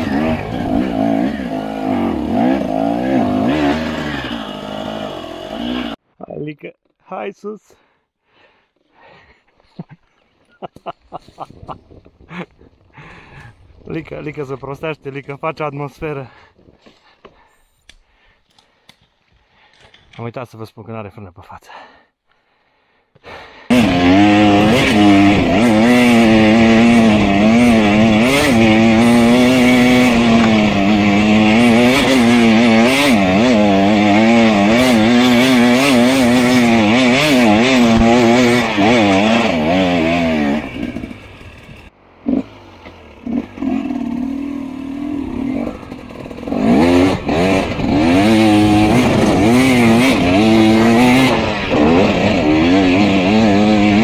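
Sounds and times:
motorcycle engine revving: 0.0s - 6.0s, 23.7s - 54.0s.

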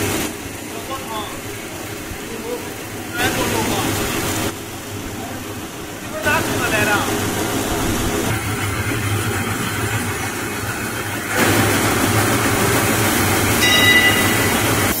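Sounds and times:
extruder machine humming: 0.0s - 15.0s
high whine: 11.4s - 15.0s.

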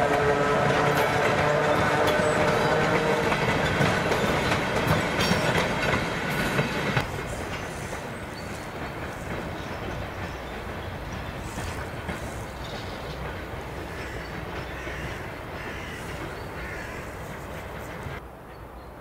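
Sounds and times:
train rumbling along rails: 0.0s - 19.0s.

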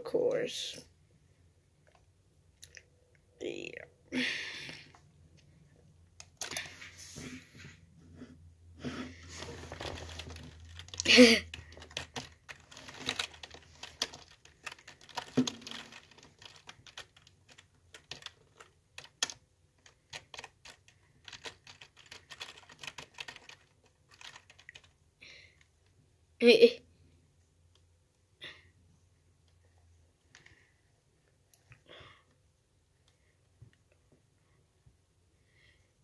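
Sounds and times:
keyboard and mouse clicking: 9.9s - 25.0s.

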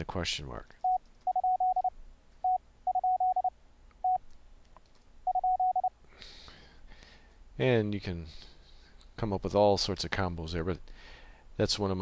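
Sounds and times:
morse code beeps: 0.9s - 4.2s, 5.3s - 5.9s.

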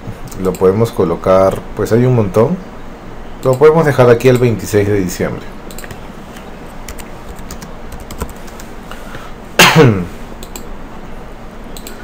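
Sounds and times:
keyboard keystrokes: 5.7s - 8.7s
person throat sound: 9.6s - 10.1s.

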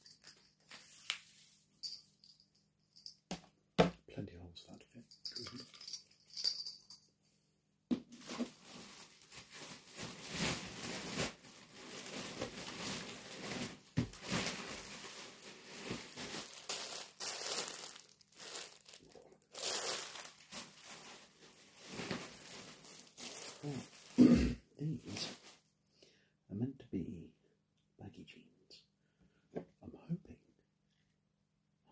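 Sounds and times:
plastic packaging crinkling: 8.1s - 24.2s.

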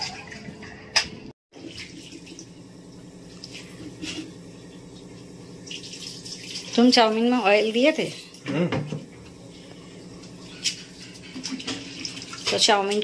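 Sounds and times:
water running and splashing: 1.5s - 13.0s
range hood fan humming: 1.6s - 12.9s.

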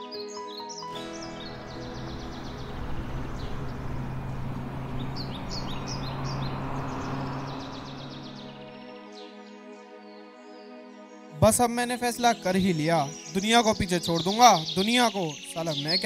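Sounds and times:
birds chirping and trilling: 0.0s - 16.0s
road traffic engine hum: 0.9s - 8.8s.

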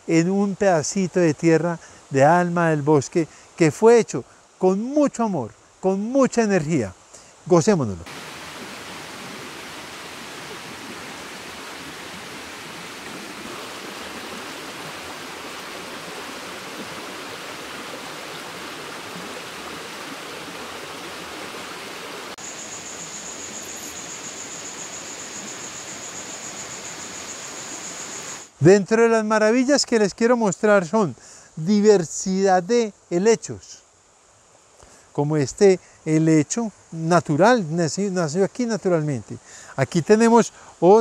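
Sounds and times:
stream flowing: 0.0s - 29.8s.

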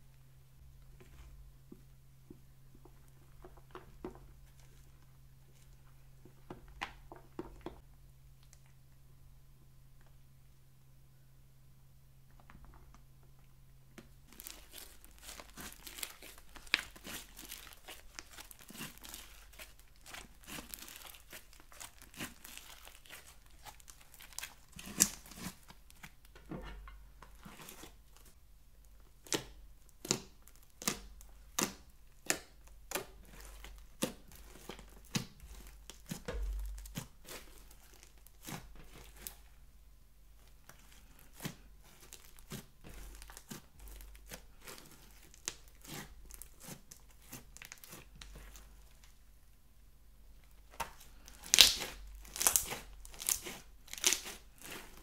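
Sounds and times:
slime crackling and popping: 14.0s - 26.4s, 29.2s - 39.4s, 40.4s - 49.1s, 50.5s - 55.0s.

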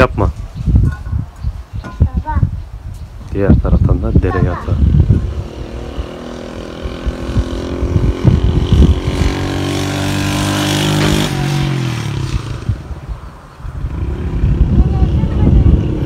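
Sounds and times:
vehicle engine passing by: 4.6s - 16.0s.

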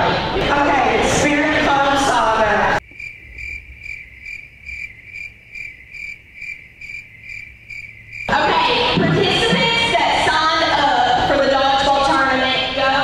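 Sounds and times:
loud crowd voices: 0.0s - 2.8s
cricket chirping: 2.8s - 8.4s.

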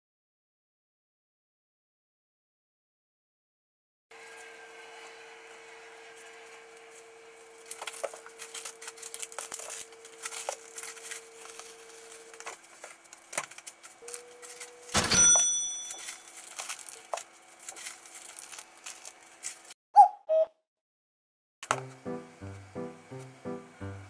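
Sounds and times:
plastic bags rustling: 7.4s - 14.9s, 15.8s - 19.8s
rustle and clatter with ringing: 13.6s - 17.0s.

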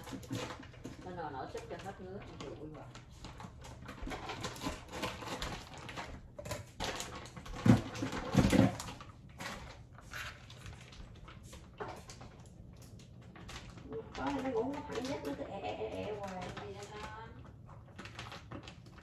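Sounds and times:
plastic bag crinkling: 0.0s - 19.0s
scissors cutting plastic: 3.3s - 10.6s.

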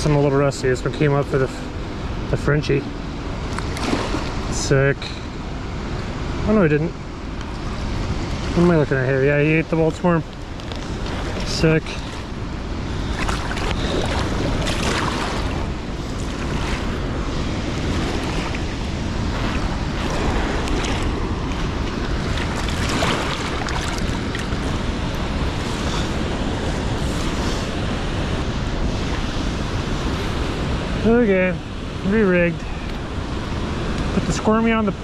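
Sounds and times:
river rushing: 0.0s - 35.0s
wind on microphone: 7.2s - 35.0s.

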